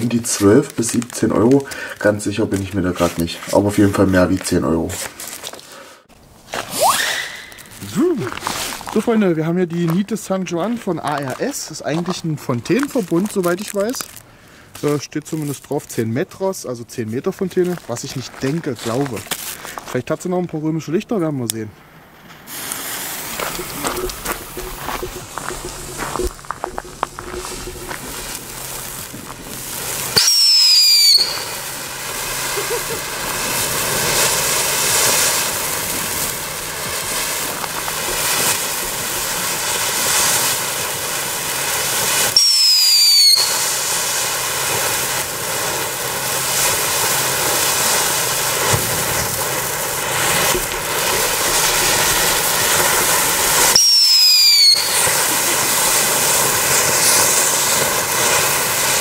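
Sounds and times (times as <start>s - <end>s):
fireworks fountain hissing: 0.0s - 20.0s, 21.9s - 59.0s
falling whistles: 6.7s - 7.8s, 30.1s - 31.6s, 42.3s - 43.6s, 53.6s - 55.2s.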